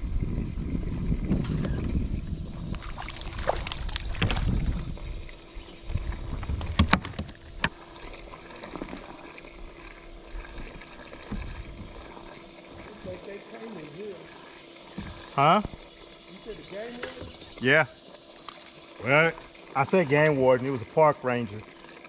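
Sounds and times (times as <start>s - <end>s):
low rumbling noise: 0.0s - 7.6s
sharp knocks and clicks: 6.5s - 7.8s.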